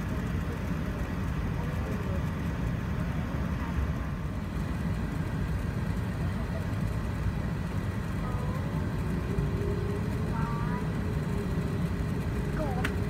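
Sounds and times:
aircraft cabin rumble: 0.0 - 13.0
faint passenger voices: 0.0 - 13.0.

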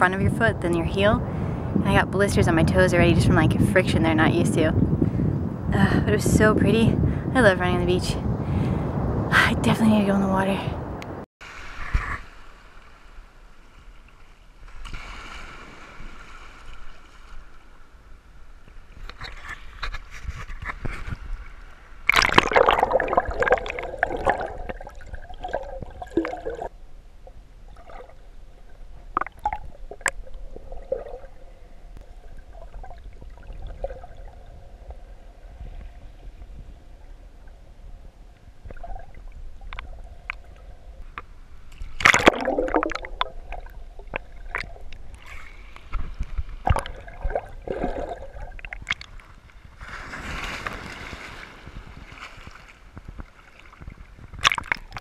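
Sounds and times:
water sloshing and gurgling: 18.6 - 55.0.

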